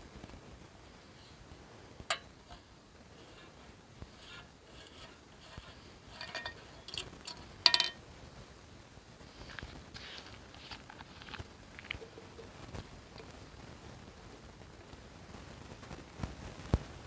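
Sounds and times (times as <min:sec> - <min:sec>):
camp gear clinking: 0:05.0 - 0:08.0.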